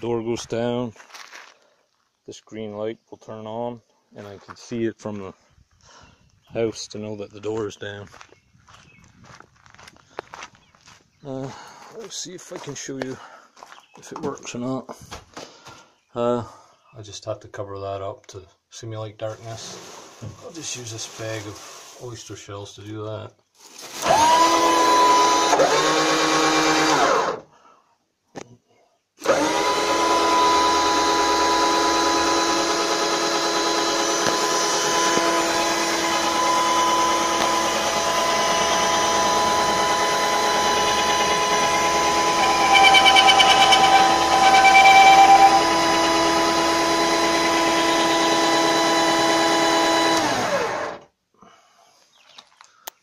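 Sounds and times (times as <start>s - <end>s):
drill motor whining: 24.0s - 27.4s, 29.2s - 51.0s
door rollers squeaking: 40.4s - 46.3s.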